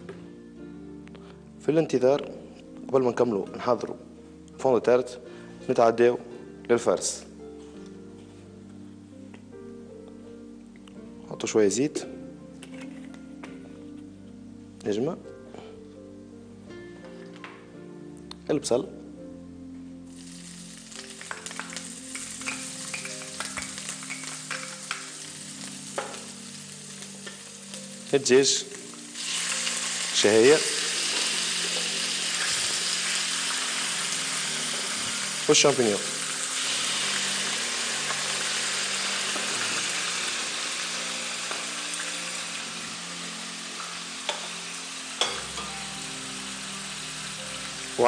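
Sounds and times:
onion sizzling in hot oil: 0:20.1 - 0:48.0.

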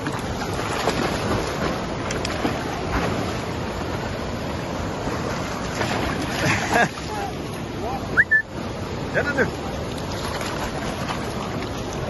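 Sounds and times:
dogs splashing in water: 0:00.0 - 0:03.4
waterfall and stream rushing: 0:00.0 - 0:12.0.

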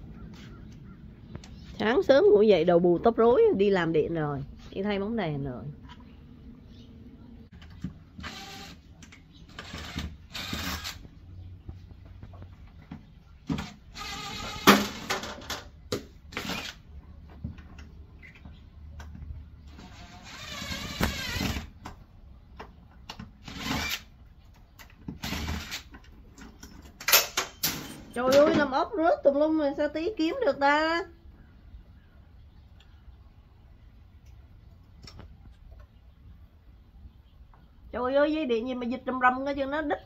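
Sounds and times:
cordless drill motor whining: 0:08.2 - 0:08.8, 0:14.0 - 0:14.7, 0:19.8 - 0:21.7.

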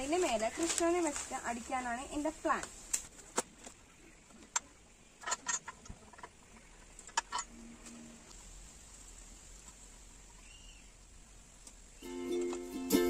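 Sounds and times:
cloth rustling: 0:00.0 - 0:02.0
faint high hiss: 0:00.0 - 0:13.0.

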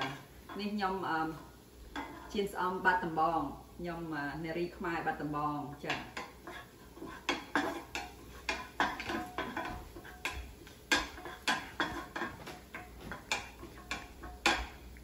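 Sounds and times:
wooden spatula scraping frying pan: 0:00.0 - 0:01.0, 0:01.8 - 0:02.5, 0:05.8 - 0:15.0.

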